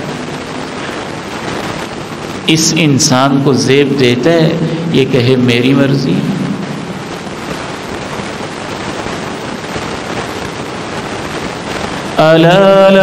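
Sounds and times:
room background noise: 0:00.0 - 0:13.0.

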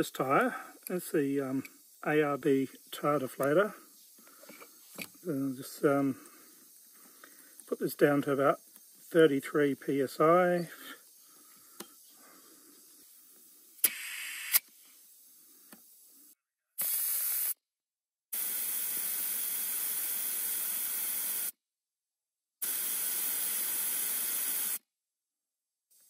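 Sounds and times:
air hissing out of tyre: 0:10.7 - 0:17.6, 0:18.4 - 0:21.6, 0:22.6 - 0:24.8.

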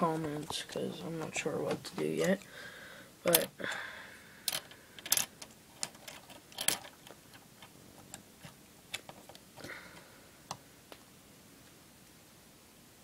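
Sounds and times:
plastic lego pieces clicking: 0:04.5 - 0:07.0.

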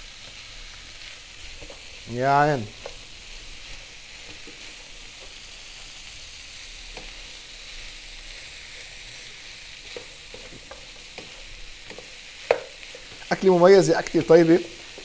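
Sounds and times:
food sizzling in a frying pan: 0:00.0 - 0:15.0
wooden spatula knocking on pan: 0:09.9 - 0:12.8.

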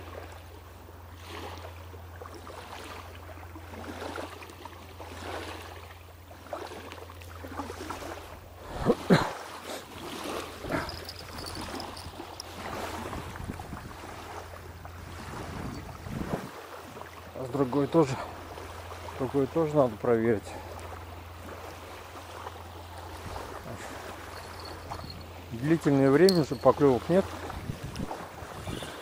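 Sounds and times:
river water: 0:00.0 - 0:29.0
wind: 0:00.0 - 0:29.0
rustling: 0:10.6 - 0:12.7.

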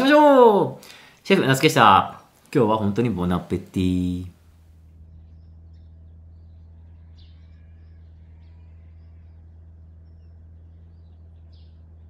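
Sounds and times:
low outdoor hum: 0:00.0 - 0:12.0
high bird chirps: 0:04.8 - 0:12.0.

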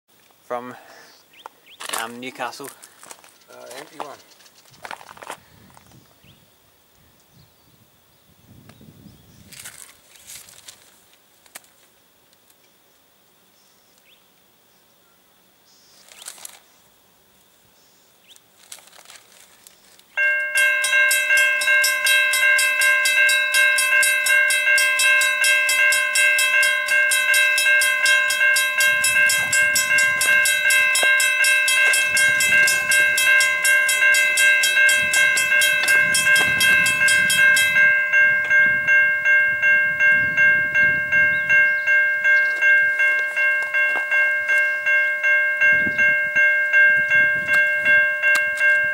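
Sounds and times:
sharp rapid high ringing: 0:20.2 - 0:48.8
level crossing warning bells: 0:20.2 - 0:48.9.

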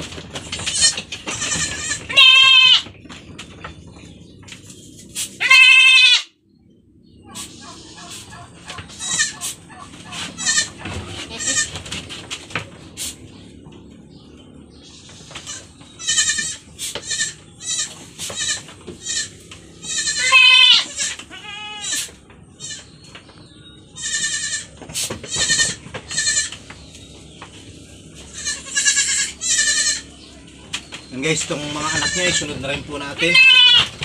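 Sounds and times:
goats bleating: 0:00.7 - 0:02.9, 0:05.4 - 0:06.3, 0:08.8 - 0:11.8, 0:15.4 - 0:22.9, 0:24.0 - 0:26.6, 0:28.2 - 0:30.3, 0:31.4 - 0:34.0.

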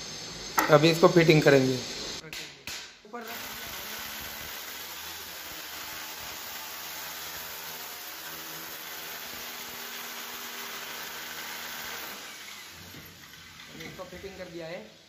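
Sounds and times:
machine hum with hiss: 0:00.0 - 0:02.2.

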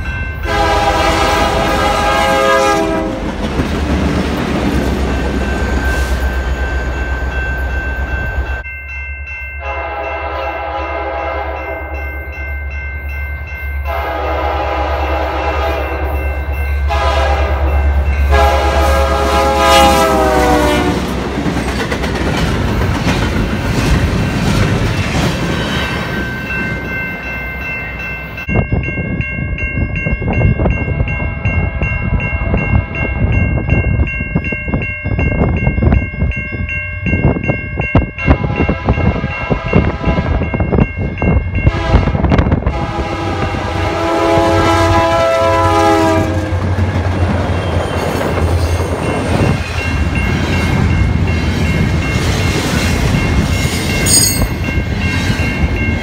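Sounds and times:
locomotive horn: 0:00.4 - 0:03.3, 0:09.6 - 0:11.9, 0:13.9 - 0:16.2, 0:16.9 - 0:21.2, 0:38.2 - 0:40.6, 0:41.6 - 0:46.7
train wheel clatter: 0:21.0 - 0:26.9.

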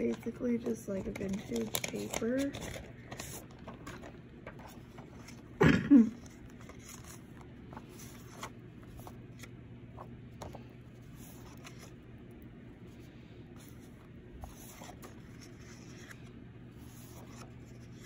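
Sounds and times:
paper sheets rustling: 0:00.0 - 0:12.0, 0:13.5 - 0:18.0
person coughing: 0:05.6 - 0:06.3.

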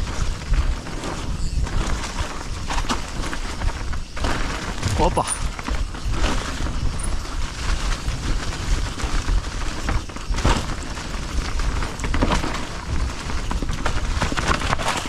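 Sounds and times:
steady low rumble: 0:00.0 - 0:09.9
bike tyres crackling over leaves: 0:00.0 - 0:15.0.

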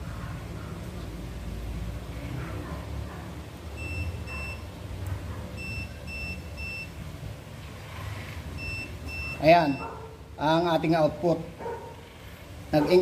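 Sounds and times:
short high-pitched beeps: 0:03.8 - 0:04.7, 0:05.6 - 0:07.0, 0:08.6 - 0:09.9.

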